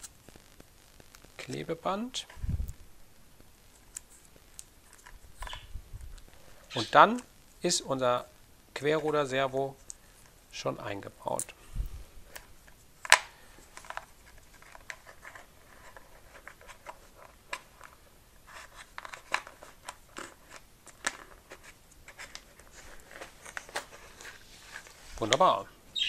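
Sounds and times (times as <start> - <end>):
faint clicks and rustles of handling cable: 0.0 - 25.7.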